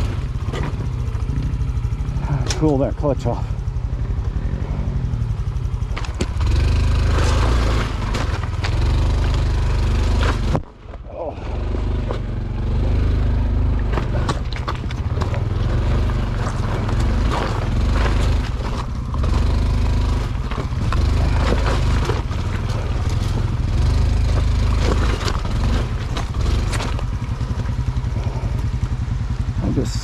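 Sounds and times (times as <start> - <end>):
motorcycle engine running: 0.0 - 30.0
knocks and clatter: 5.9 - 29.0.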